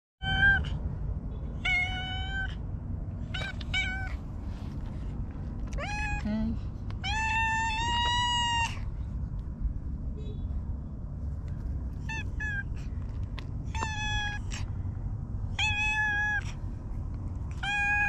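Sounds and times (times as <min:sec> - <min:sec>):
cat meowing: 0:00.2 - 0:00.8, 0:01.5 - 0:02.6, 0:03.2 - 0:04.3, 0:05.7 - 0:06.3, 0:07.0 - 0:08.8, 0:12.0 - 0:12.9, 0:13.7 - 0:14.8, 0:15.5 - 0:16.6, 0:17.5 - 0:18.0
steady low rumble: 0:00.2 - 0:18.0.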